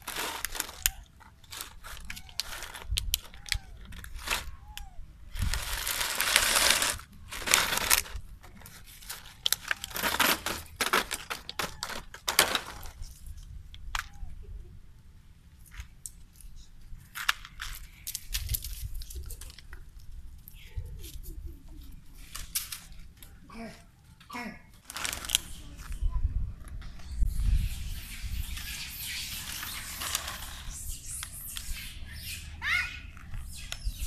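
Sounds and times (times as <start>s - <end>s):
plastic bottle crinkling: 0.0s - 4.6s, 5.4s - 13.0s, 24.8s - 25.5s.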